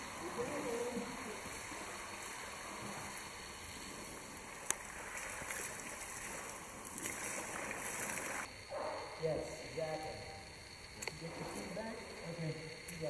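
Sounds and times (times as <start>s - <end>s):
water spraying from hose: 0.0s - 8.5s.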